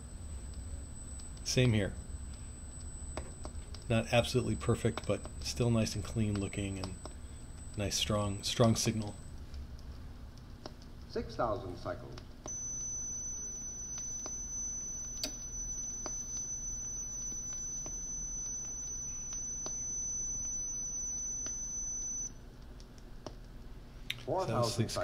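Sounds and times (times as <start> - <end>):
steady sine test tone: 0.0 - 9.8, 12.4 - 22.5.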